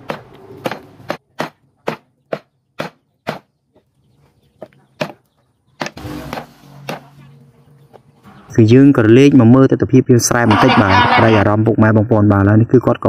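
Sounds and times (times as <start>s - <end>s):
cleaver chopping on wooden block: 0.0s - 3.5s, 5.0s - 5.2s.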